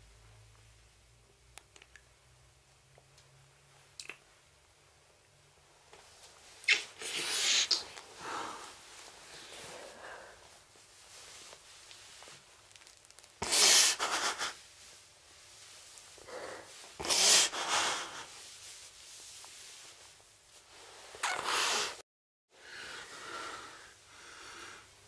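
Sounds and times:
person breathing: 0:07.0 - 0:10.7, 0:16.2 - 0:18.4, 0:22.6 - 0:24.9.

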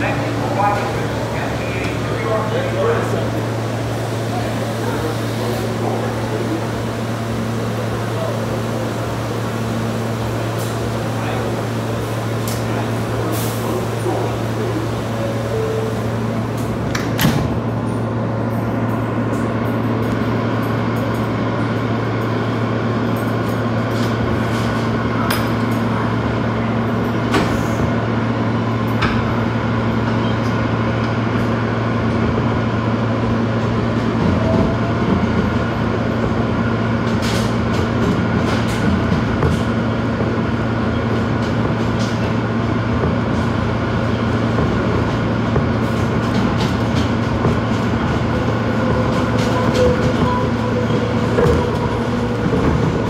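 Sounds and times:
subway car electrical hum: 0:00.0 - 0:53.0.

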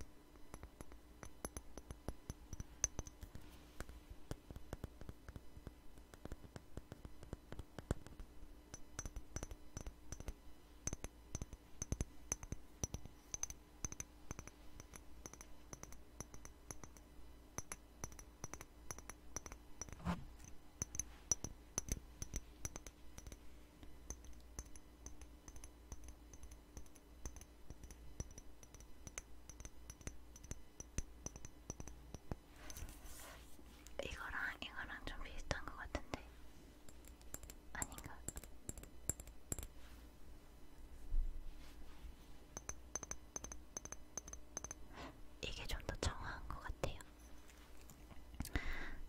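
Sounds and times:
fingers tapping on bottle: 0:00.0 - 0:23.4, 0:24.1 - 0:32.9, 0:36.9 - 0:39.7, 0:42.6 - 0:44.9.

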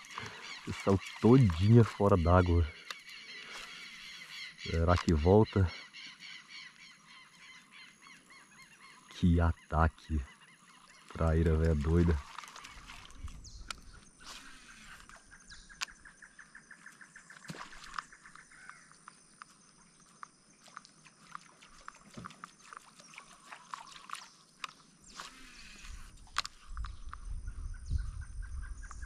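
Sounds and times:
small ticks: 0:02.8 - 0:03.8, 0:17.4 - 0:27.3
wind rumbling on microphone: 0:12.8 - 0:14.1, 0:25.8 - 0:29.0.

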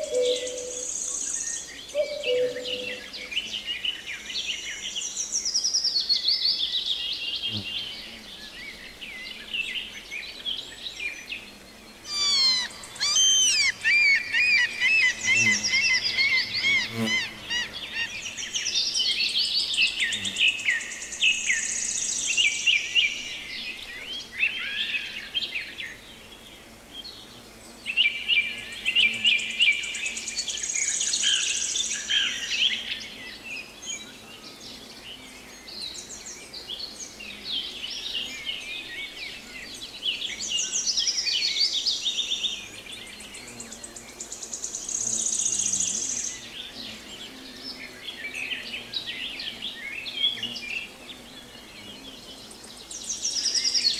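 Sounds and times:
high buzzy bird trills: 0:00.0 - 0:03.7, 0:11.5 - 0:18.8
songbirds singing: 0:00.0 - 0:53.9.

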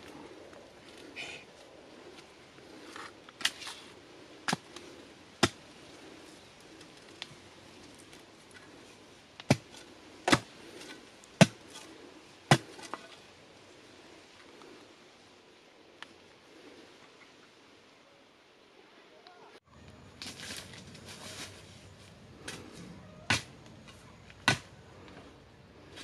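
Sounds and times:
tool chopping into bamboo: 0:10.3 - 0:10.5, 0:12.5 - 0:13.0, 0:24.4 - 0:24.7.

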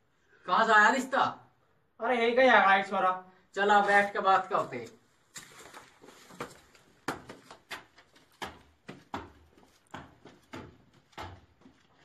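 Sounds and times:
footsteps on concrete stairs: 0:03.8 - 0:12.0.

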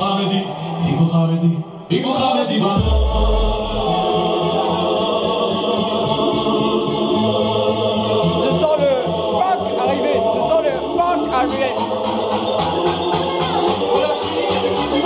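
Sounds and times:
party music with choir-like vocals: 0:00.0 - 0:15.0
deep bass hit: 0:02.8 - 0:04.3.

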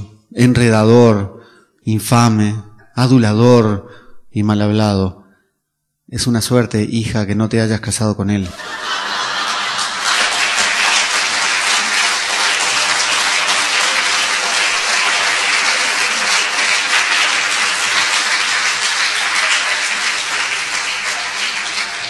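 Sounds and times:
audience applauding: 0:08.5 - 0:22.0.

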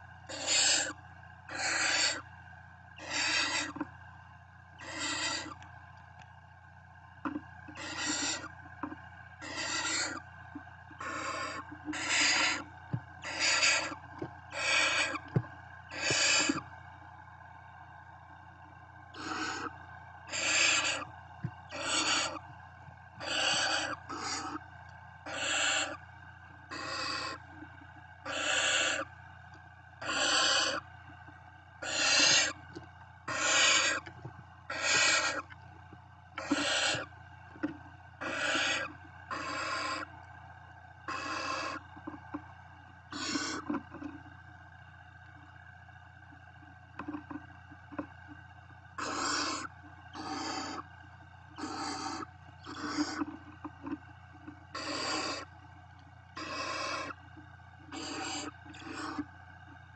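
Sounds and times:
owl chicks hissing begging calls: 0:00.3 - 0:02.2, 0:03.0 - 0:03.8, 0:04.8 - 0:05.6, 0:07.7 - 0:08.6, 0:09.4 - 0:10.2, 0:11.0 - 0:16.7, 0:19.2 - 0:21.1, 0:21.7 - 0:22.4, 0:23.2 - 0:24.6, 0:25.2 - 0:26.0, 0:26.6 - 0:27.4, 0:28.2 - 0:29.1, 0:30.0 - 0:30.8, 0:31.8 - 0:32.6, 0:33.3 - 0:34.1, 0:34.7 - 0:35.5, 0:36.4 - 0:37.1, 0:38.2 - 0:40.1, 0:41.1 - 0:41.8, 0:43.1 - 0:43.7, 0:49.0 - 0:50.9, 0:51.5 - 0:53.3, 0:54.7 - 0:55.5, 0:56.4 - 0:57.2, 0:57.9 - 0:59.3.

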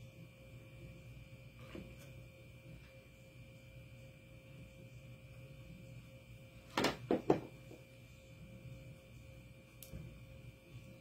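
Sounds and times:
faint steady hum: 0:00.0 - 0:11.0
tool knocks on table: 0:06.8 - 0:07.5.

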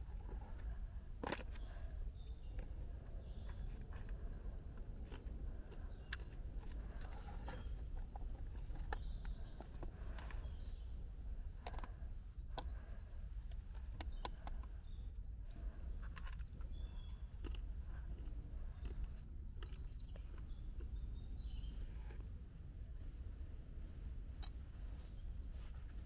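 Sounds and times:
bird chirps: 0:05.1 - 0:12.1, 0:12.7 - 0:22.4.

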